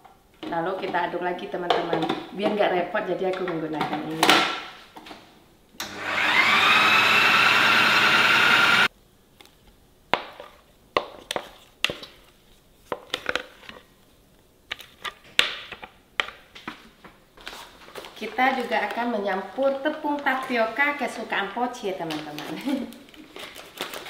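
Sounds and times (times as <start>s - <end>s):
food processor motor whine: 5.8s - 8.9s.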